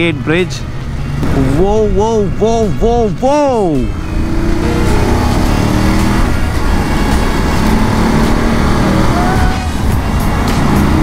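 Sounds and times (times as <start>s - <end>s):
road noise: 0.0s - 11.0s
motorcycle engine hum: 0.6s - 11.0s.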